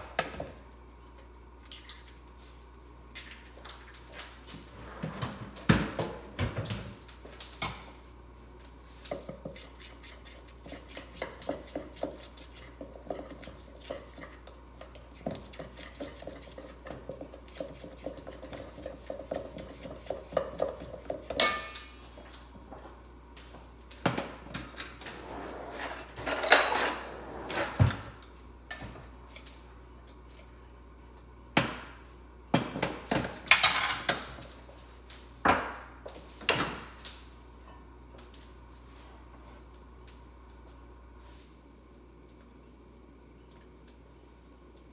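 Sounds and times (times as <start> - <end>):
utensil scraping metal bowl: 9.4 - 20.9.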